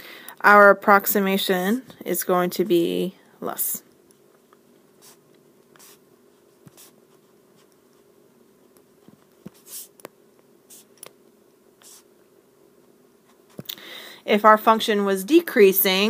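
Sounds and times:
faint steady hum: 0.0s - 16.0s
stylus scratching on screen: 5.0s - 8.1s, 9.0s - 10.0s, 10.7s - 11.0s, 11.8s - 12.1s.

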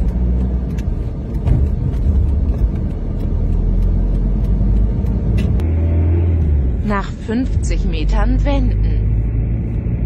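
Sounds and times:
light regular ticking: 0.0s - 5.7s
car engine and tyres rumbling: 0.0s - 10.0s.

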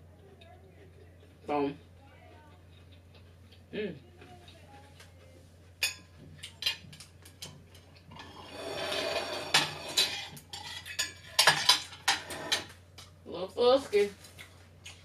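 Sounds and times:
fork and plates clinking: 5.8s - 13.1s
plate scraping over plate: 8.1s - 12.7s.

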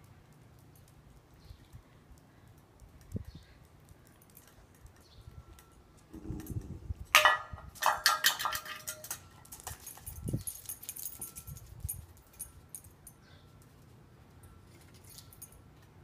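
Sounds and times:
metal bowl clattering on brick: 7.1s - 9.8s.

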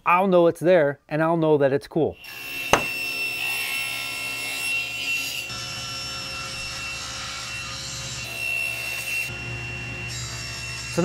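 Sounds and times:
table saw ripping a board: 2.4s - 9.4s.

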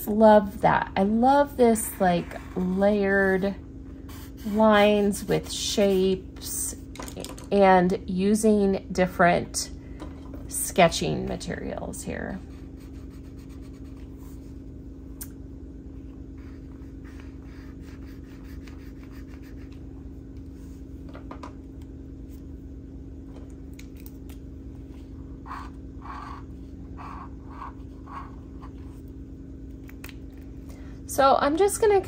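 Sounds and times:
steady low hum: 0.0s - 32.0s
marker scratching on paper: 4.1s - 6.2s, 12.4s - 14.4s, 16.4s - 19.8s, 25.4s - 29.0s.

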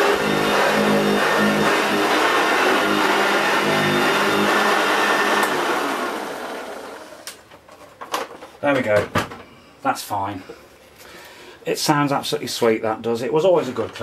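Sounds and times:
vacuum cleaner running: 0.0s - 7.3s.

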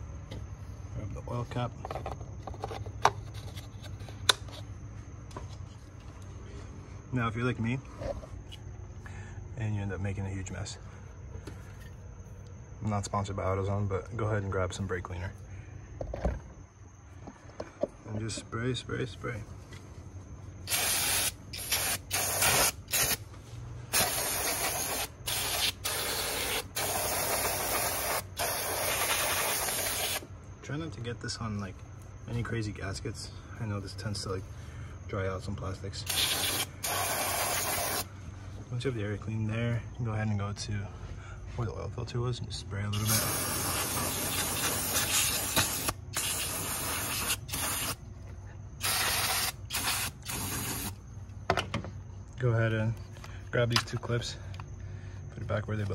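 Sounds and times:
aerosol can spraying: 20.7s - 23.2s, 23.9s - 30.2s, 36.1s - 38.1s, 43.0s - 48.0s, 48.8s - 51.0s.

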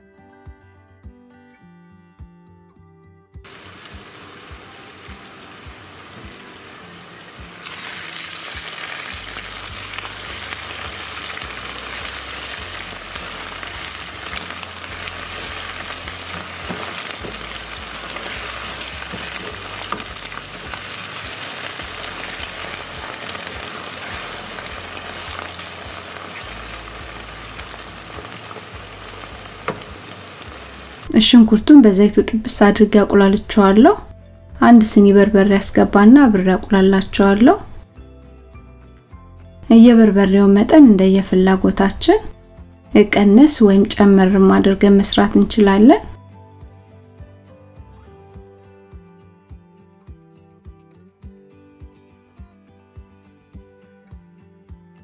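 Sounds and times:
onions sizzling in oil: 3.5s - 31.2s
wooden spatula stirring: 9.7s - 31.1s.

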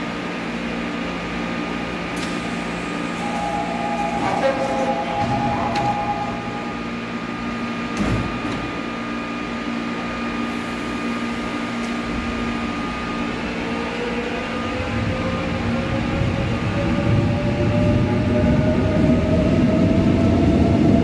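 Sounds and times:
subway train hum: 0.0s - 21.0s
rising whine: 2.8s - 7.8s.

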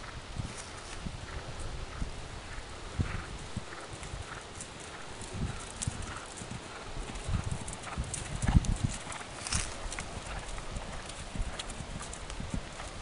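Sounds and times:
horse hoofbeats on grass: 0.0s - 13.0s.

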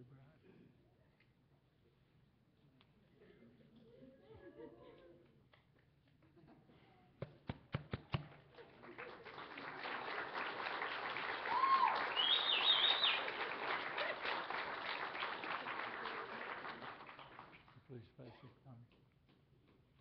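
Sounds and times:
audience clapping: 7.7s - 17.9s
short high calls: 11.4s - 13.4s.

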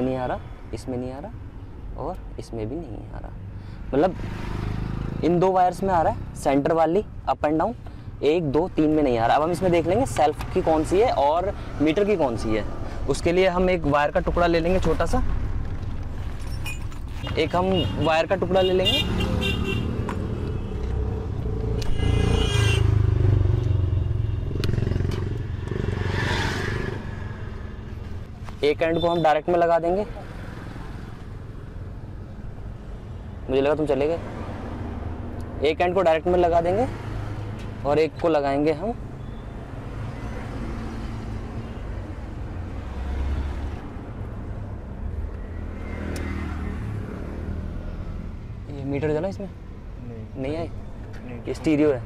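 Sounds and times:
low rumble of vehicle noise: 0.0s - 52.0s.

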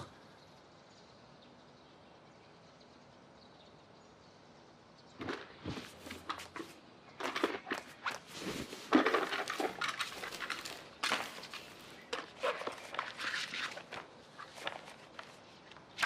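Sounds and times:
rustles scrapes and soft knocks: 5.2s - 15.8s.

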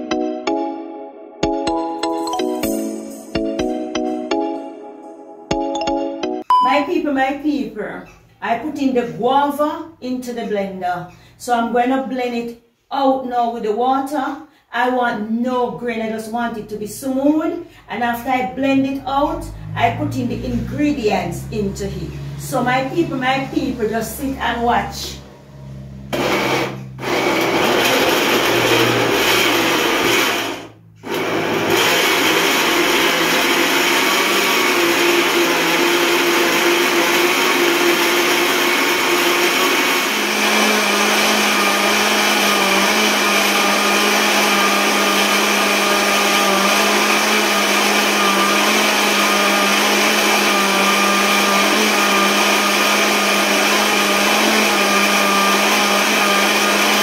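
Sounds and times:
electric blender running: 19.6s - 57.0s.

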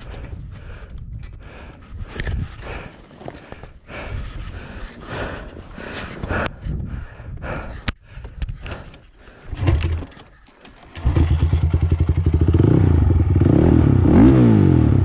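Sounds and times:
clicks knocks and scrapes: 8.5s - 11.0s
quad engine starting and running: 9.5s - 15.0s.

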